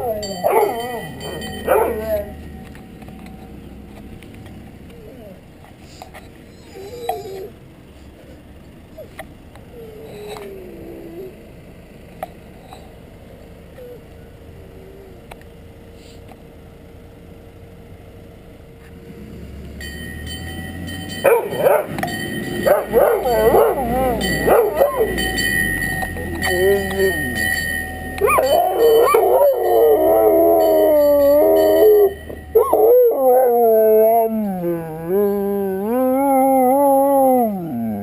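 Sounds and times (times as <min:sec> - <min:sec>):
dog whimpering and howling: 0:00.0 - 0:02.5, 0:04.9 - 0:05.5, 0:06.2 - 0:07.6, 0:08.9 - 0:11.4, 0:22.6 - 0:25.3, 0:26.0 - 0:27.6, 0:28.2 - 0:38.0
engine rumble: 0:00.0 - 0:38.0
high steady tone: 0:19.8 - 0:33.8.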